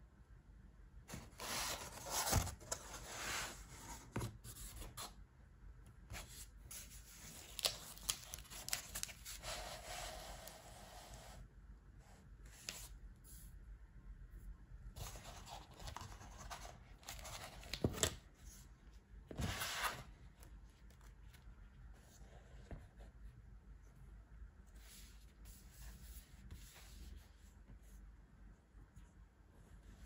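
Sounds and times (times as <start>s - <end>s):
cardboard rubbing and scraping: 1.1s - 5.1s, 19.3s - 20.1s.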